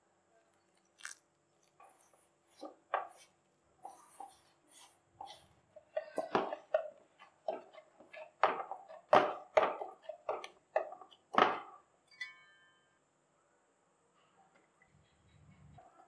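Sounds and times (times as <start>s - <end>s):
dough knocking against steel bowl: 5.3s - 11.8s.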